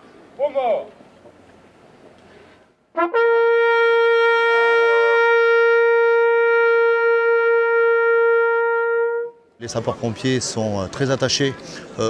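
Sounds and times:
military bugles: 2.9 - 9.5.

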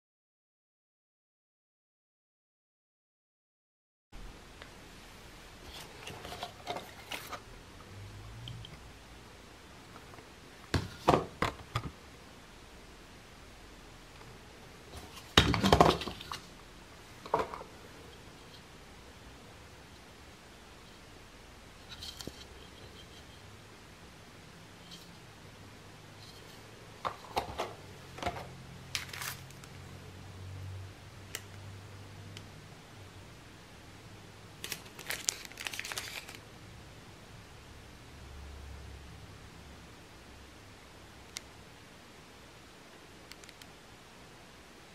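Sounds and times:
plastic packaging crinkling: 28.9 - 29.7, 34.6 - 36.4
sharp plastic crackles: 28.9 - 29.8, 34.6 - 36.4.

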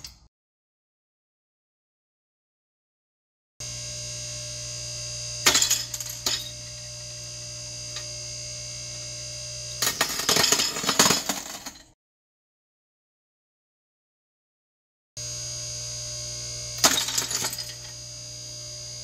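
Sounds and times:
hydraulic press humming: 3.6 - 11.3.

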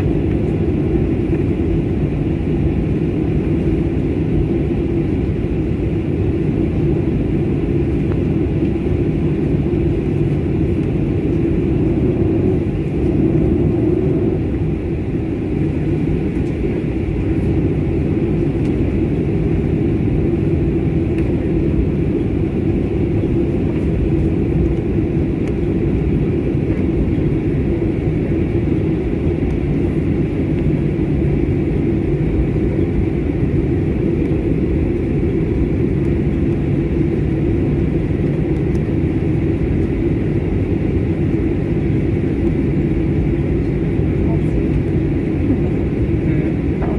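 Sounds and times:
jet engines rumbling in cabin: 0.0 - 46.9.

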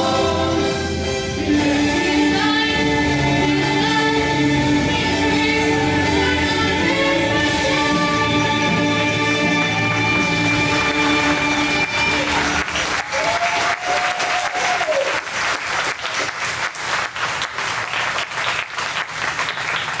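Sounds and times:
audience applauding: 9.4 - 20.0.

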